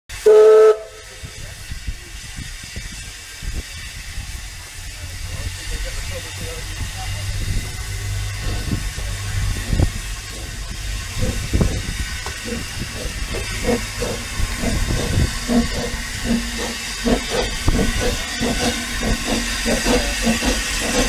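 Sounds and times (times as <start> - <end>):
steam locomotive hissing: 0.1 - 21.0
low knocks and rumbles: 7.4 - 21.0.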